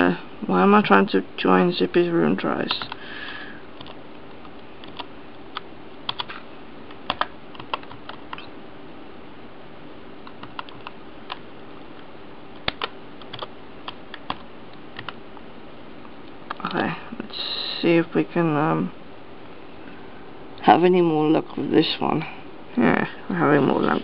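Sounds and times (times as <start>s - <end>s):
typing on computer keyboard: 4.8s - 5.1s, 6.1s - 6.3s, 7.1s - 8.5s, 10.3s - 11.4s, 12.6s - 14.4s.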